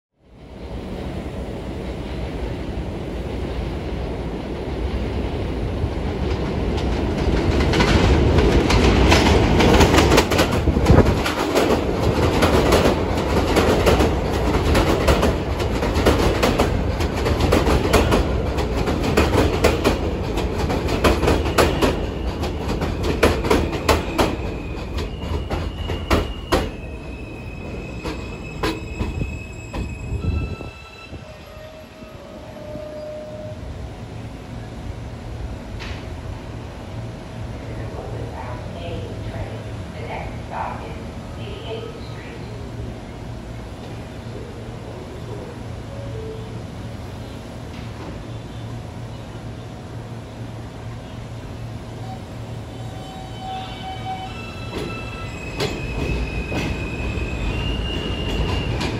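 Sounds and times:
subway train rumble and wheel clatter: 0:00.2 - 0:58.9
train brake squeal: 0:23.7 - 0:33.6, 0:51.9 - 0:58.9.

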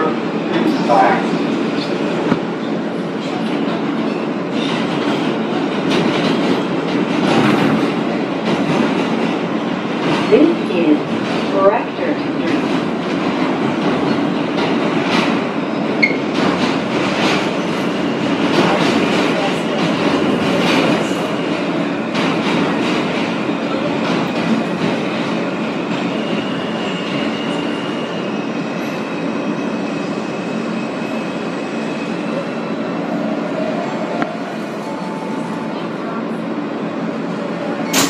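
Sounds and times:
train wheels rumbling on track: 0:00.0 - 0:38.0.

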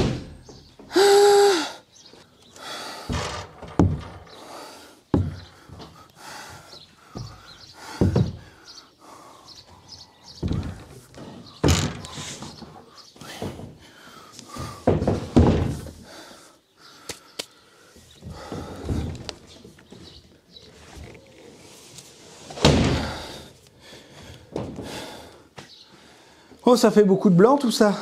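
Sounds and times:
plastic water tank knocking and thudding: 0:03.1 - 0:04.4, 0:05.2 - 0:05.5, 0:08.0 - 0:08.5.

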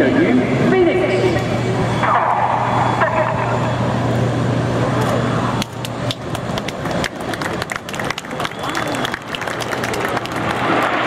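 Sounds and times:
jet noise: 0:00.0 - 0:11.0
spectators clapping: 0:05.6 - 0:11.0.

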